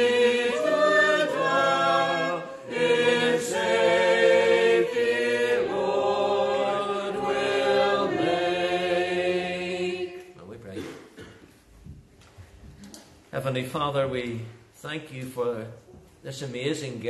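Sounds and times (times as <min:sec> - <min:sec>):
congregation singing unaccompanied: 0:00.0 - 0:10.4.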